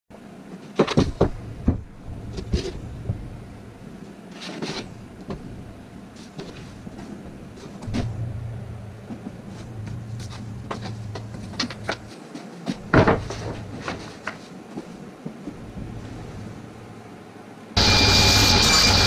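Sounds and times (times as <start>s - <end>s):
boards knocking together: 0.7s - 3.2s, 9.9s - 14.4s
board scraping: 9.1s - 14.5s.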